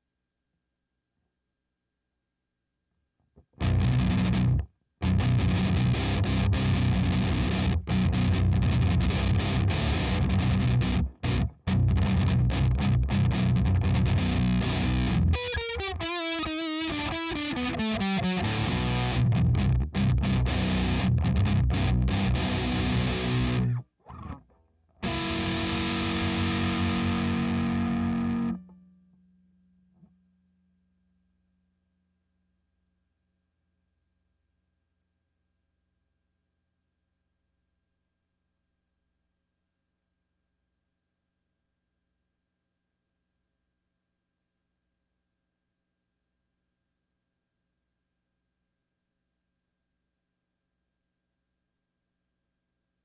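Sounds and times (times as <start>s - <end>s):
distorted electric guitar riff: 3.6s - 24.4s, 25.0s - 28.8s.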